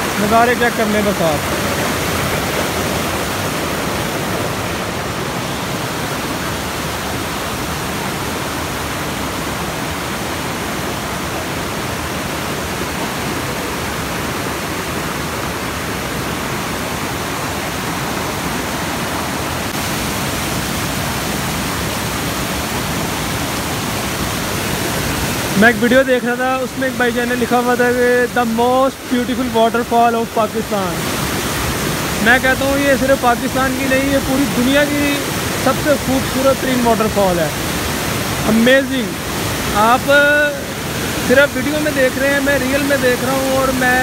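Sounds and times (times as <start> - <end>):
waterfall pouring: 0.0 - 8.2.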